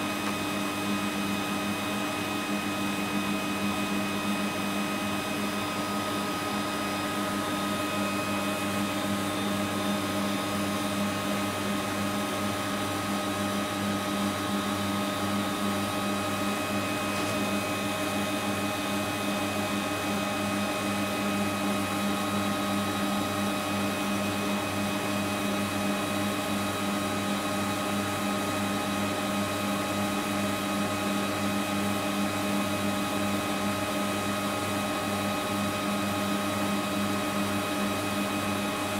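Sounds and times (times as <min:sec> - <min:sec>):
pump motor humming: 0:00.0 - 0:24.9.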